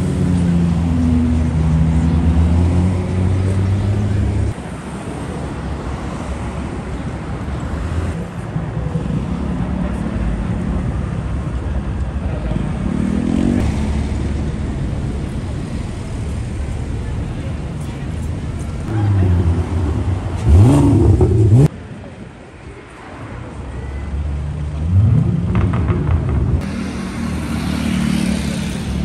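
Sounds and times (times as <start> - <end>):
traffic rumble: 0.0 - 29.0
deep steady car engine: 13.6 - 21.7
engine revving up: 18.9 - 21.7.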